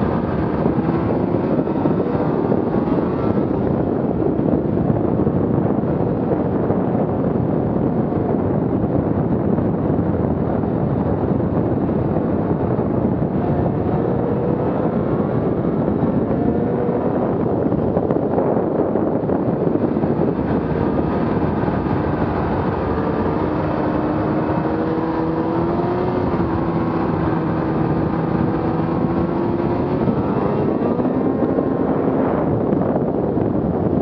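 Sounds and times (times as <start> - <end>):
rush of track and snow: 0.0 - 34.0
snowmobile engine running: 10.9 - 34.0.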